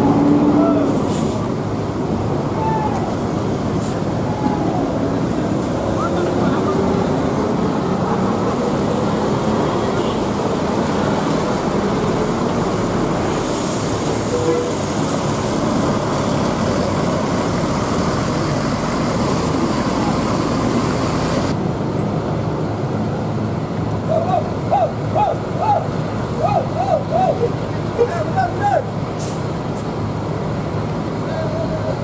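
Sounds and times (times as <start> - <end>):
bus diesel engine droning: 0.0 - 32.0
high air hiss: 0.9 - 1.6, 13.2 - 15.8.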